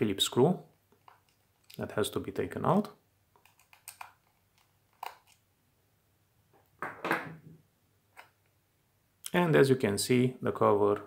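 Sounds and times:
screwdriver clicks and scratches: 3.4 - 5.4.

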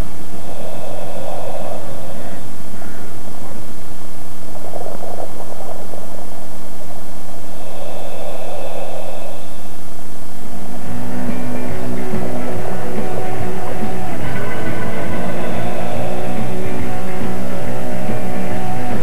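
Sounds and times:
steady electrical hum: 0.0 - 19.0
regulator hiss of diver breathing: 7.4 - 9.7
rock music: 10.8 - 19.0.

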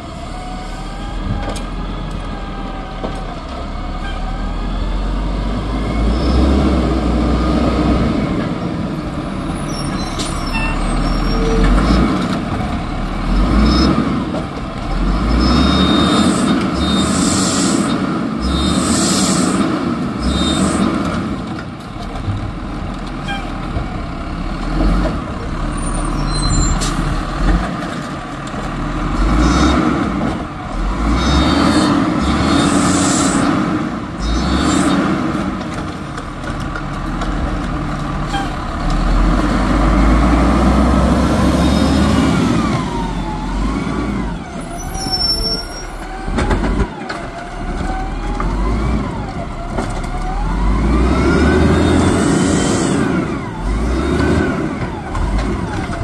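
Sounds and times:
garbage truck diesel engine running: 0.0 - 56.0
air brakes hissing: 16.0 - 20.8.

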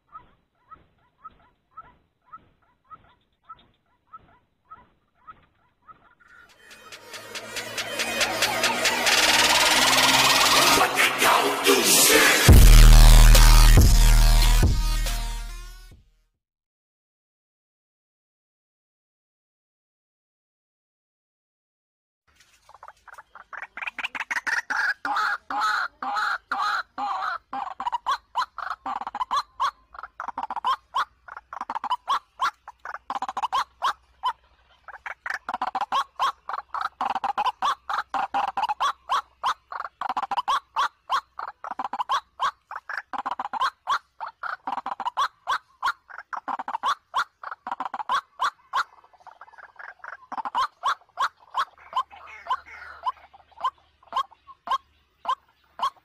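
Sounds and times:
waterhen harsh croaking calls: 0.0 - 12.5, 22.7 - 56.0.

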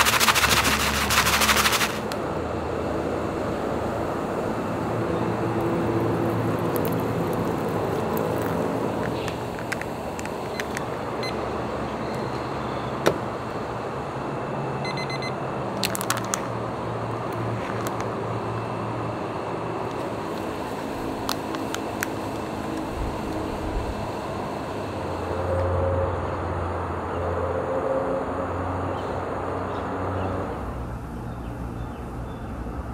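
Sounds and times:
foil pouch crinkling: 0.0 - 2.2, 5.4 - 10.9, 15.8 - 16.5
background hum: 0.0 - 32.9
hot water pouring into pouch: 5.4 - 10.4
kitchen timer beeps: 14.8 - 15.4.

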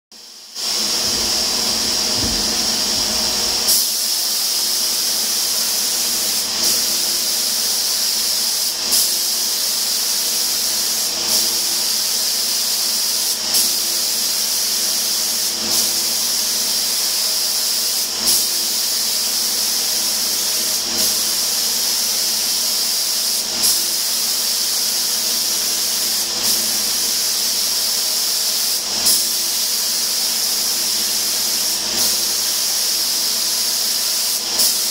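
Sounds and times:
spray gun hissing: 0.2 - 34.9.

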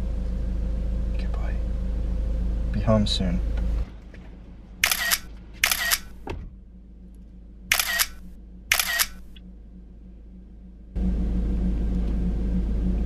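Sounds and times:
camera shutter clicks: 4.8 - 6.2, 7.7 - 9.3.

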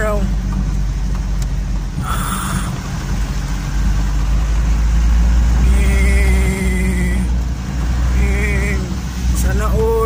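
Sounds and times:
tyres on rough road: 0.0 - 10.0
vehicle engine rumble: 0.0 - 10.0.

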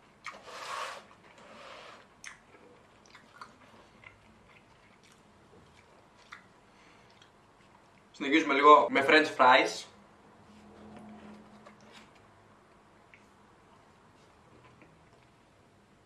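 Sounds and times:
person chewing: 2.0 - 8.1, 13.0 - 15.4.

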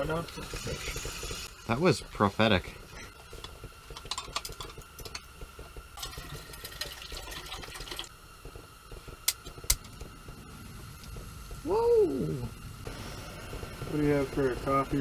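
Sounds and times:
water poured into a pot: 6.0 - 8.1
camp stove igniter clicks: 9.2 - 10.1.

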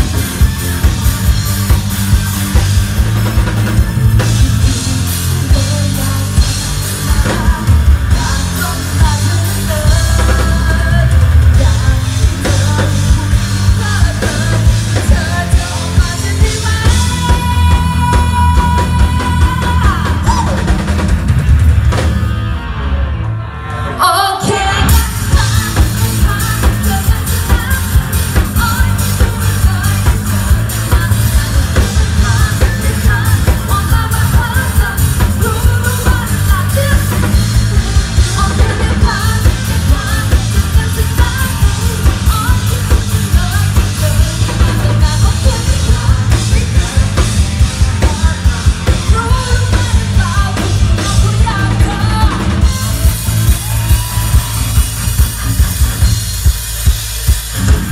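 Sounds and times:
bass guitar: 0.0 - 57.9
drum kit: 0.0 - 57.9
woman singing into a microphone: 4.2 - 20.9, 24.0 - 53.2.

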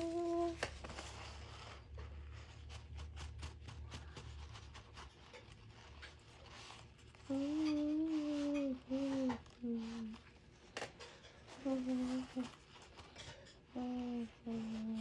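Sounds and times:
hands tapping and rubbing: 0.0 - 15.0.

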